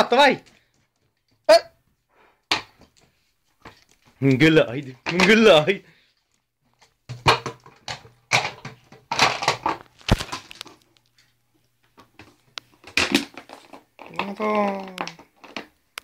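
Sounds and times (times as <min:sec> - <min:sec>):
plastic bottle crunching: 0:06.8 - 0:11.2, 0:12.0 - 0:16.0.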